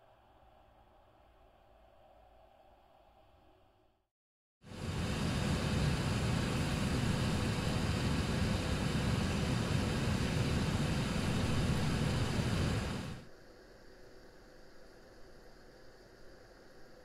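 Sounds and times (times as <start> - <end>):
airliner cabin drone: 4.7 - 13.3
faint steady tone: 4.7 - 17.0.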